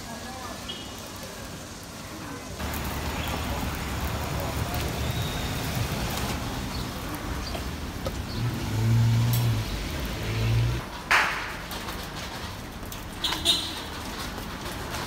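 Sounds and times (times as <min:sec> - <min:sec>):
street noise: 0:00.0 - 0:15.0
vehicle engine humming: 0:02.6 - 0:10.8
sharp clack: 0:11.1 - 0:11.6.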